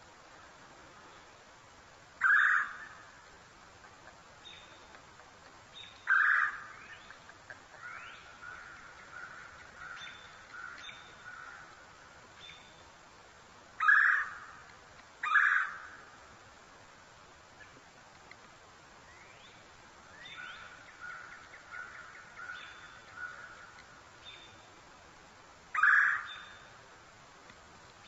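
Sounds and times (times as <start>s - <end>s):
woodpecker calling: 2.2s - 12.8s, 13.8s - 16.2s, 19.1s - 24.7s, 25.7s - 26.8s
faint bird chirps: 5.7s - 11.7s, 19.0s - 24.8s.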